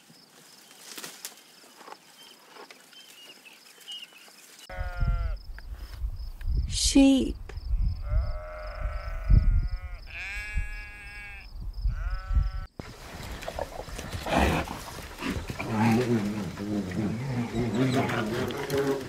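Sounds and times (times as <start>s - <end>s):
sheep bleating: 4.7s - 5.4s, 8.0s - 12.7s
bear growling: 13.2s - 19.0s.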